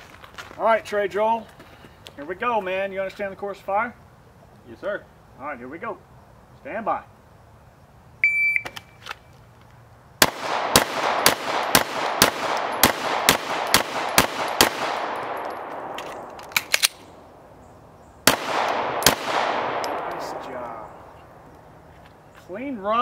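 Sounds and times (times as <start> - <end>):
shot timer beep: 8.2 - 8.8
rapid pistol shots: 10.2 - 16.0, 18.2 - 20.5
magazine change clicks: 12.4 - 17.1.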